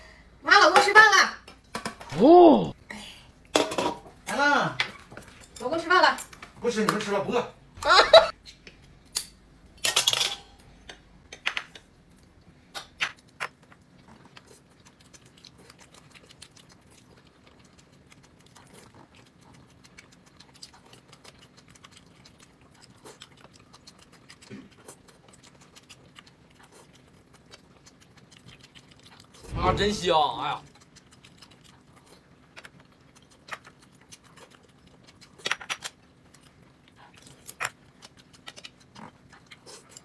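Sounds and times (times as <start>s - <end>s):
tableware clinking: 9.2s - 11.4s.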